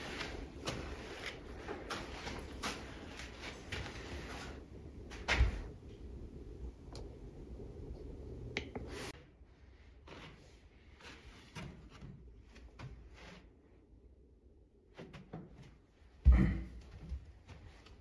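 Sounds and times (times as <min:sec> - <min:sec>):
footsteps: 0:00.0 - 0:05.8.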